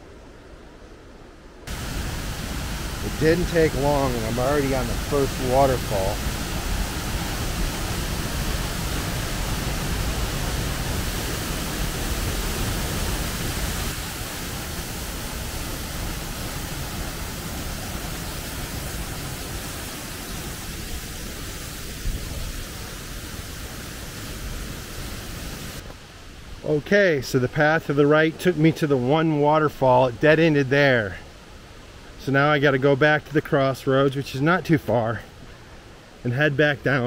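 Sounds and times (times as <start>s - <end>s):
waterfall splashing into pool: 1.7s - 25.9s.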